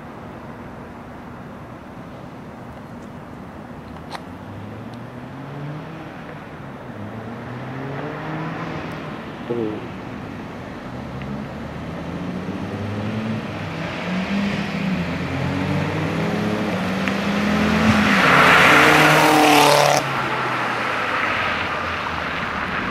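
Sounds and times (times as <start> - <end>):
car engine accelerating past: 4.5 - 9.4, 10.9 - 22.9.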